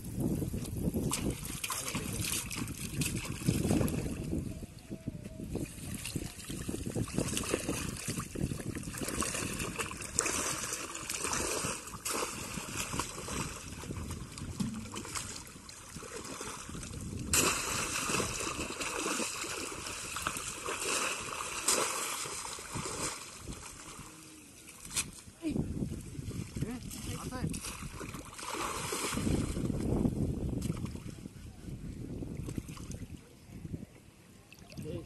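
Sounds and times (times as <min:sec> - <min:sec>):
water splashing: 0:01.0 - 0:04.3, 0:05.8 - 0:25.2, 0:26.3 - 0:29.9
water trickling: 0:12.7 - 0:17.4.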